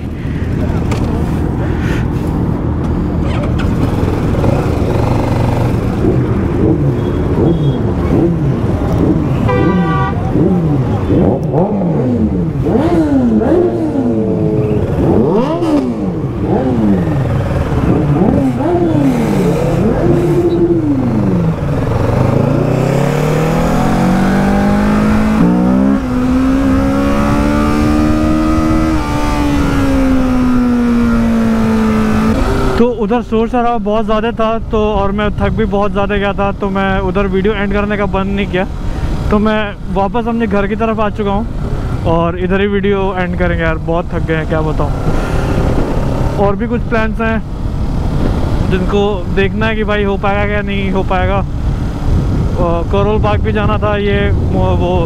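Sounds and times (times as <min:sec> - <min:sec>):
motorcycle engines revving: 0:00.0 - 0:33.1, 0:36.1 - 0:55.0
horn blast: 0:09.4 - 0:10.6.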